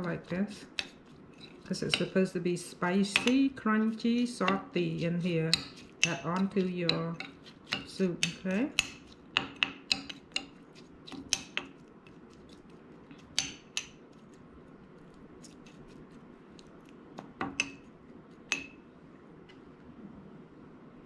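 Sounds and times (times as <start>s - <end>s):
spoon clinking against bowl: 5.3s - 10.6s.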